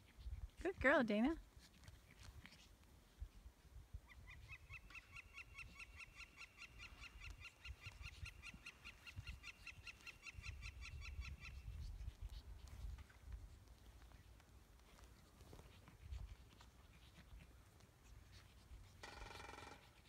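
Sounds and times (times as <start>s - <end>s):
woodpecker call: 4.1s - 11.7s, 19.0s - 20.0s.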